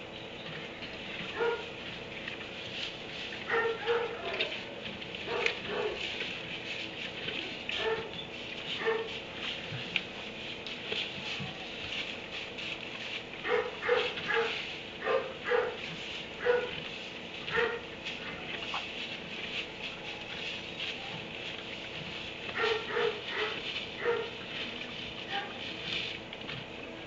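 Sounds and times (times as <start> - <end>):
dog barking: 1.3 - 1.7, 3.5 - 4.5, 5.3 - 6.0, 7.8 - 8.2, 8.8 - 9.2, 13.4 - 15.8, 16.4 - 16.8, 17.5 - 17.9, 22.6 - 24.4, 25.3 - 25.6.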